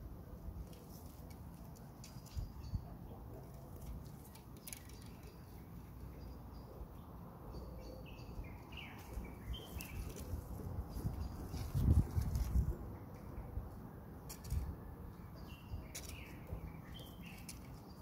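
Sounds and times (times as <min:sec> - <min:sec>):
bird chirping: 0:02.0 - 0:03.2, 0:04.3 - 0:12.0, 0:15.1 - 0:18.0.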